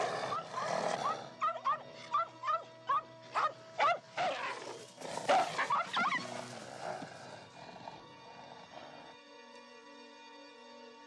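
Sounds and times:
background music: 0:00.0 - 0:11.0
dog barking in sharp yaps: 0:05.3 - 0:06.2.

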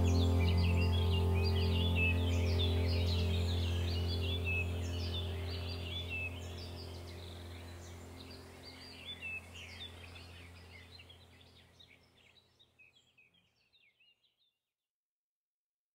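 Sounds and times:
steady low drone: 0:00.0 - 0:11.8
small birds chirping: 0:00.0 - 0:14.5.

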